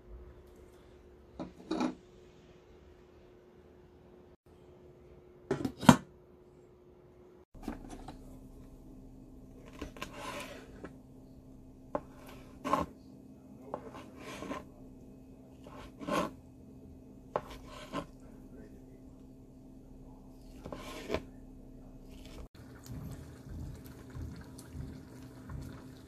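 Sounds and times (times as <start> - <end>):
faint low hum: 0.0 - 26.0
knife scraping rasp: 9.7 - 10.9, 12.2 - 12.9, 13.8 - 14.7, 15.6 - 16.4, 17.4 - 18.2, 20.6 - 21.3.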